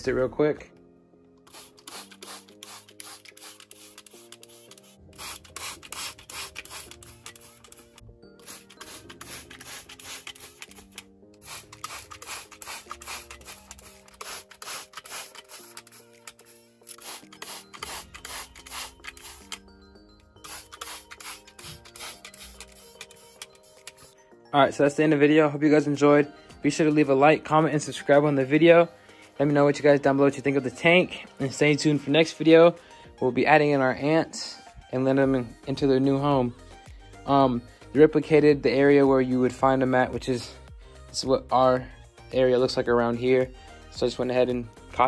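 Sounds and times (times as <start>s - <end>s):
soft background music: 0.0s - 45.0s
spray bottle spritzing: 1.5s - 19.6s, 20.4s - 24.2s.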